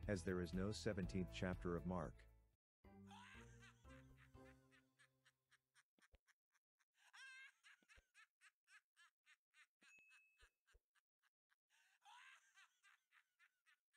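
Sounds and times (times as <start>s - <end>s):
recorded giggling laughter: 3.1s - 13.9s.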